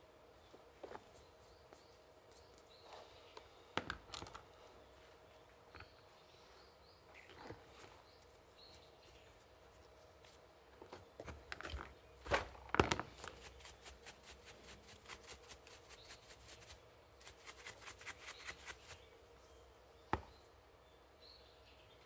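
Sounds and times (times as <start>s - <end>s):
stiff brush scrubbing: 13.2s - 19.1s.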